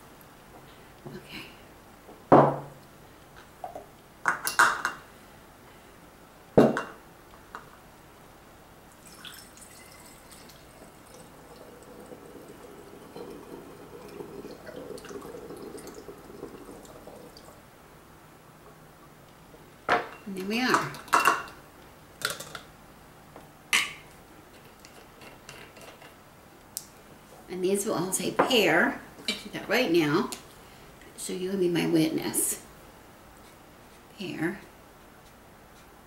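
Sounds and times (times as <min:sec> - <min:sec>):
kitchenware knocks and clinks: 0:06.6 - 0:07.0
liquid pouring into glass bottle: 0:08.9 - 0:17.6.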